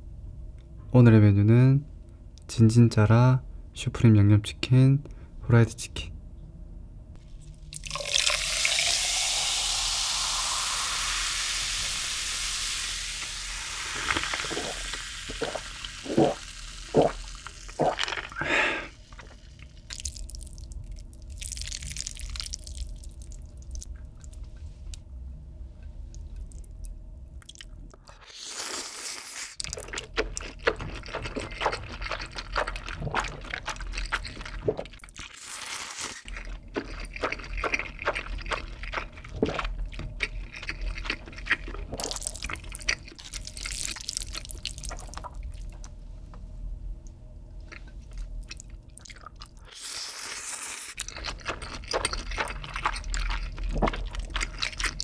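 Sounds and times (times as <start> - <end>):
soda fizzing pour over ice: 7.8 - 18.4
slurping and chewing noodles: 13.4 - 20.6, 27.5 - 45.8, 47.7 - 55.0.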